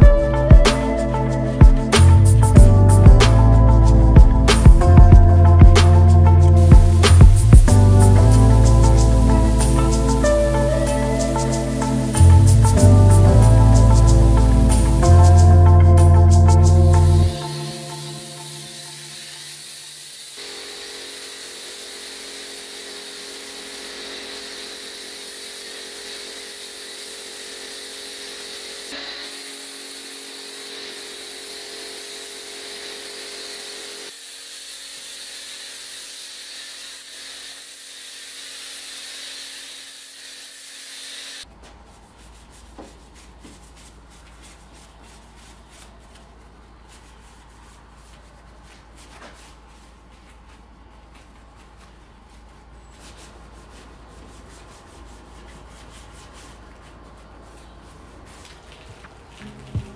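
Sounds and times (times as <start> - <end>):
wash mitt rubbing bodywork: 0.1 - 19.2, 41.4 - 59.9
pressure washer spraying hiss: 3.3 - 41.4.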